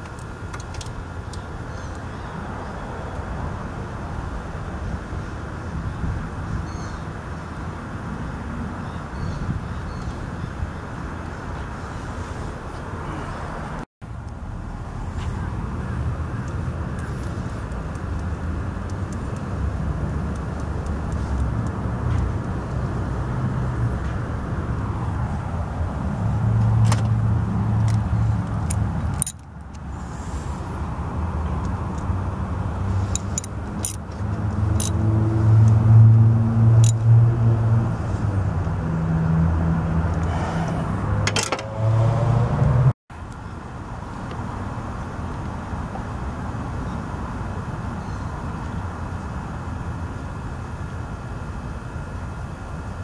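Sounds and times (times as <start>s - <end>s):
metallic clicks and jangles: 27.9s - 29.8s, 33.0s - 34.2s, 34.8s - 35.0s, 36.8s - 37.0s.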